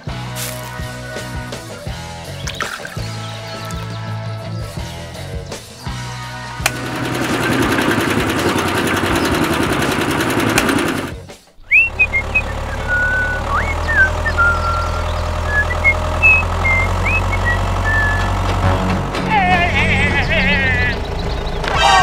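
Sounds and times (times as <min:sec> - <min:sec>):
toy tractor engine drone: 0:06.5 - 0:22.0
short high chirps: 0:11.6 - 0:18.3.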